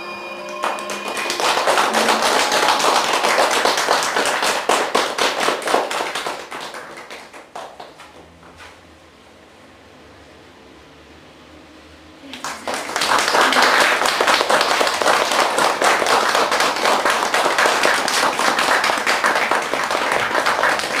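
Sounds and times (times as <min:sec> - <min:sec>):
audience applauding: 0:00.5 - 0:08.3, 0:12.2 - 0:21.0.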